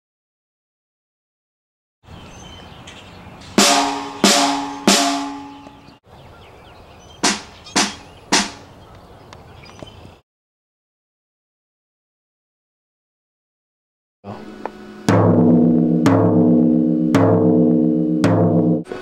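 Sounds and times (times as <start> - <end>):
resonant ringing strikes: 3.6 - 6.0, 14.4 - 18.9.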